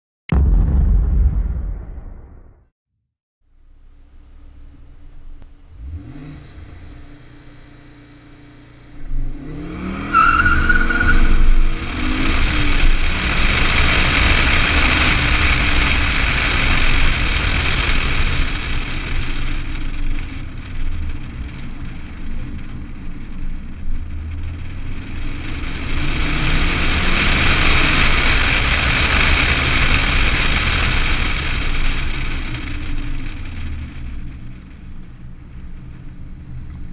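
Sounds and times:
car engine accelerating hard: 0:04.0 - 0:36.9
tyre squeal: 0:10.1 - 0:11.6.

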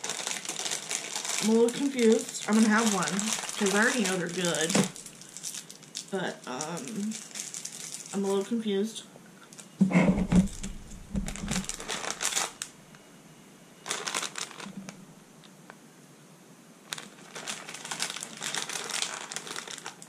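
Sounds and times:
plastic snack packet crinkling: 0:00.0 - 0:08.6, 0:09.5 - 0:09.7, 0:10.5 - 0:12.7, 0:13.8 - 0:15.0, 0:16.9 - 0:20.0
muffled thump: 0:09.8 - 0:11.7.

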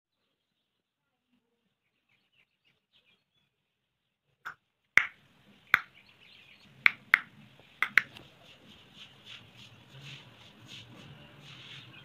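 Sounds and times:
sharp clicks: 0:06.9 - 0:08.2.

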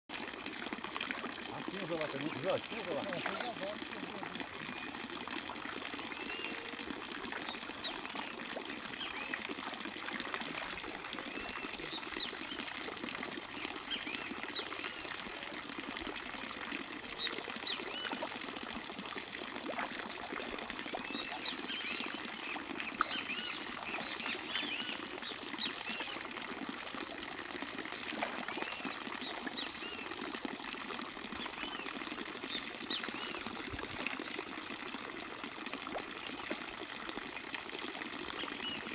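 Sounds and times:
birds chirping: 0:01.5 - 0:05.0, 0:21.0 - 0:26.2.

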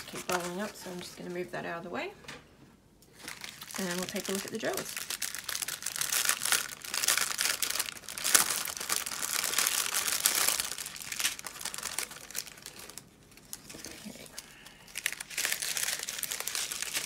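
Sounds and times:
plastic packaging crinkling: 0:00.0 - 0:01.3, 0:03.1 - 0:17.0.

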